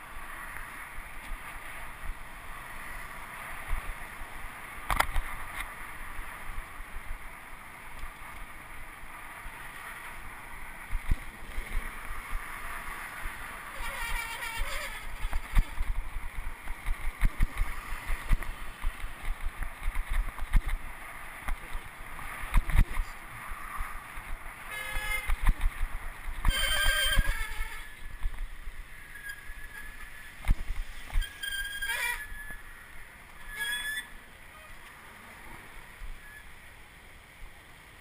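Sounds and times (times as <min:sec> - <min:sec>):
road and traffic noise: 0:00.0 - 0:38.0
high-pitched squeals: 0:13.7 - 0:15.9, 0:26.4 - 0:28.1, 0:28.8 - 0:30.4, 0:31.1 - 0:34.8, 0:36.0 - 0:36.6.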